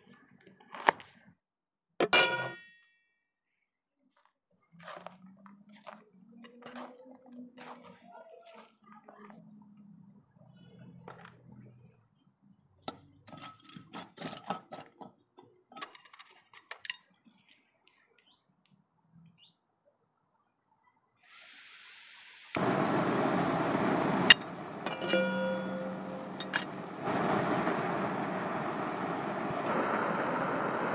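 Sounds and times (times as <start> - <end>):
gas hissing from valve: 21.2 - 30.9
gas burner burning: 21.3 - 30.9.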